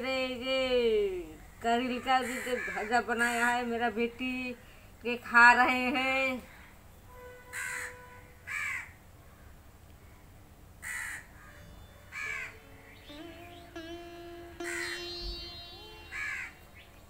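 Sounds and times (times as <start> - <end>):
crow cawing: 7.5 - 9.5, 10.8 - 12.5, 14.6 - 15.1, 16.1 - 16.5
faint instrumental music: 11.3 - 17.0.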